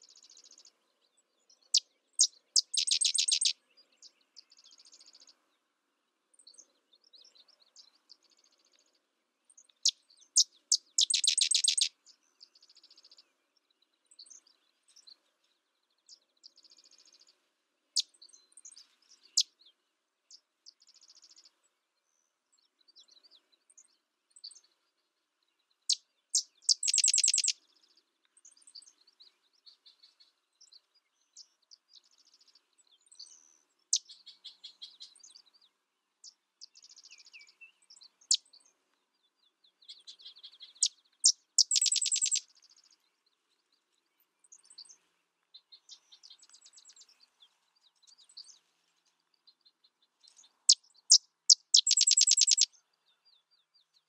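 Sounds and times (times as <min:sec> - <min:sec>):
bird chips and short calls: 0:02.2 - 0:03.6, 0:09.8 - 0:11.9, 0:26.4 - 0:27.6, 0:39.8 - 0:42.6, 0:50.4 - 0:52.8
wren chattering trill: 0:02.6 - 0:03.5, 0:10.7 - 0:11.9, 0:26.7 - 0:27.5, 0:41.6 - 0:42.4, 0:51.5 - 0:52.7.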